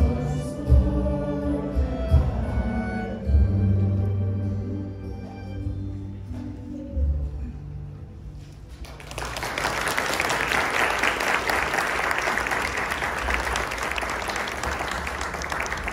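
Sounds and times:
audience applause: 8.8 - 15.9.

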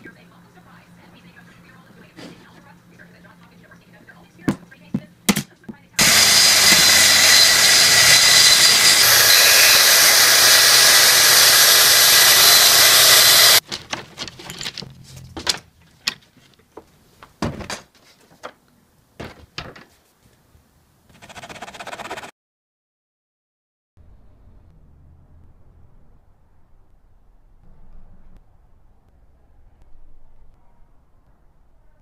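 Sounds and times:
circular saw cutting plywood: 6.0 - 13.6, 21.1 - 22.3
knocks and clicks of handling wood: 13.6 - 18.6, 19.2 - 20.0.

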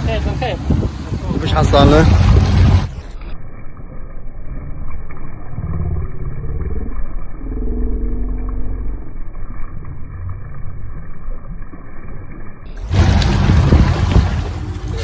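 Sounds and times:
motorboat engine rumbling: 0.0 - 15.0.

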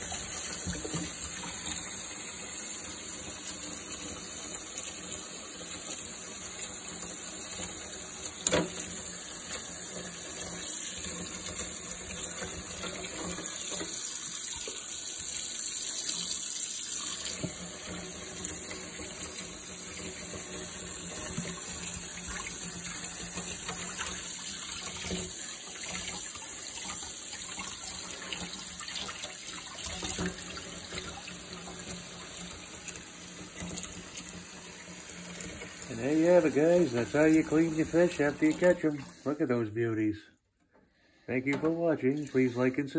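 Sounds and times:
tap water splashing in sink: 0.0 - 39.2.

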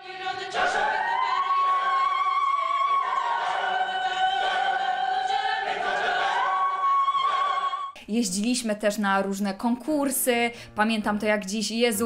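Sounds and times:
choir singing held chords: 0.0 - 8.0.

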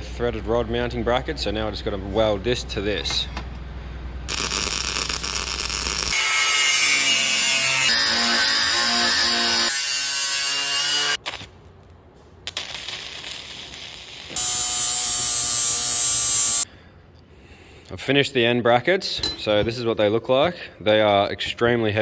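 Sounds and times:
welder arc crackling: 4.3 - 6.7, 11.0 - 16.6
angle grinder cutting metal: 4.3 - 11.2, 14.3 - 16.6.

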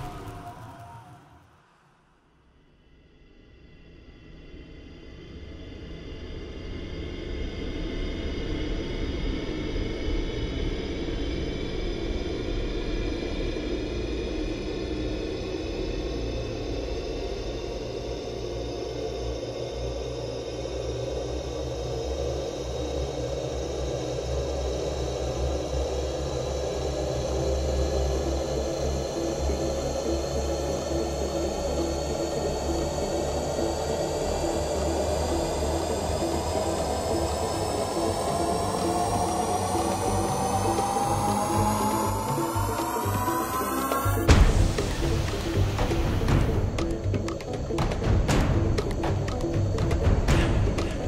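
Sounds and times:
low rumbling drone: 0.0 - 1.8, 2.5 - 51.0.

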